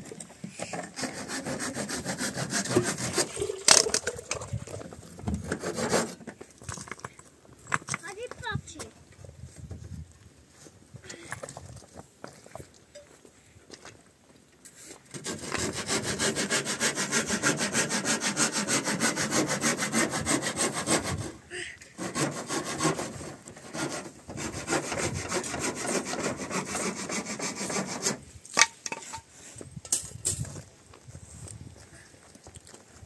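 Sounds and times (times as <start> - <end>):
hand saw cutting wood: 0.6 - 4.5, 5.4 - 6.2, 15.1 - 28.3.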